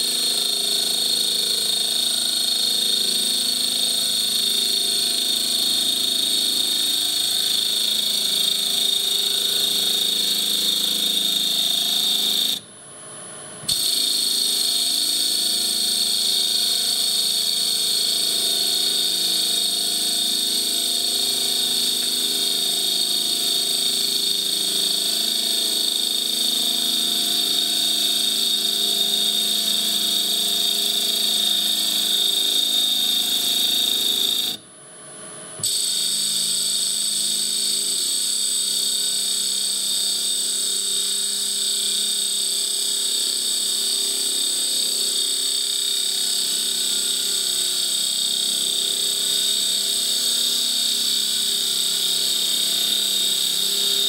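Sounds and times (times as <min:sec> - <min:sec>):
milling machine whine: 0:00.0 - 0:54.0
cutting tool hiss: 0:13.6 - 0:34.6, 0:35.6 - 0:54.0.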